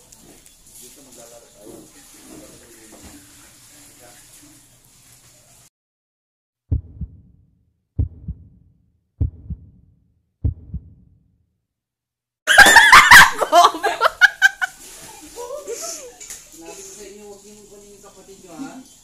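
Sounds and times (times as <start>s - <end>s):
heartbeat thumps: 6.7s - 7.4s, 8.0s - 11.2s
loud laughter and shrieking: 12.5s - 14.7s.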